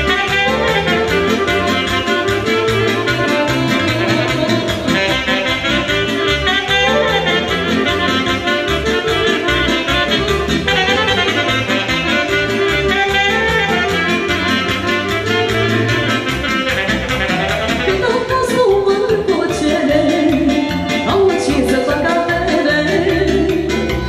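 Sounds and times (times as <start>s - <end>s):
accordion: 0.0s - 24.0s
saxophone melody: 0.0s - 24.0s.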